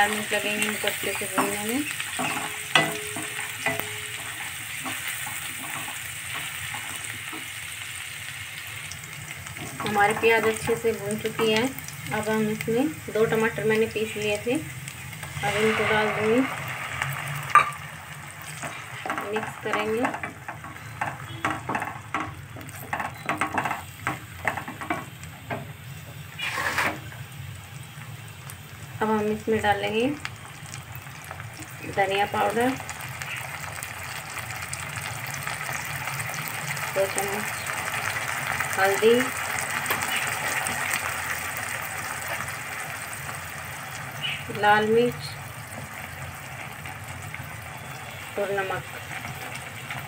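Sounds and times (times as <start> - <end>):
onions sizzling in hot oil: 0.0 - 50.0
wooden spatula scraping pan: 15.2 - 17.8, 26.4 - 27.1.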